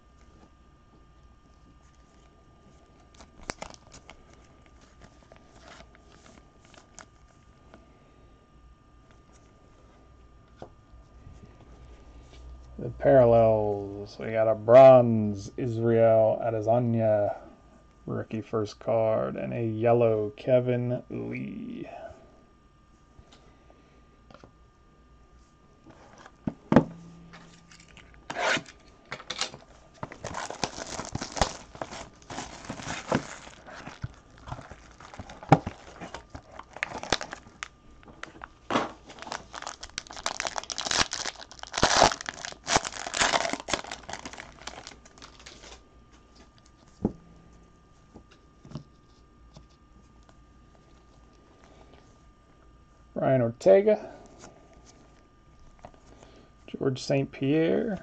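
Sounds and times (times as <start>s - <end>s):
wrapper tearing and crinkling: 3.0s - 7.2s, 27.7s - 45.8s.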